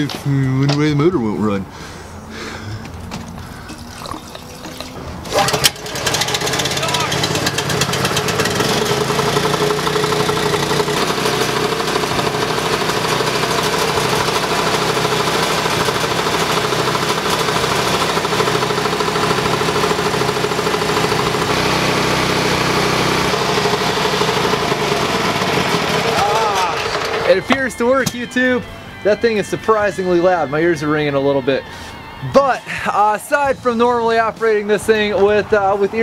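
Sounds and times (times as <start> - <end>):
compressor engine running: 2.3 - 28.7.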